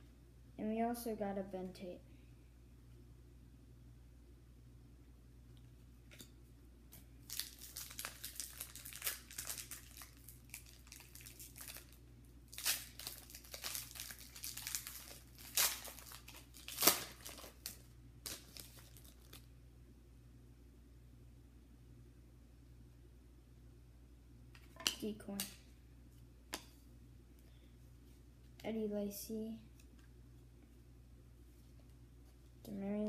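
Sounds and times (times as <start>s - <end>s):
foil wrapper crinkling: 7.2s - 19.5s
foil wrapper ripping: 7.2s - 19.5s.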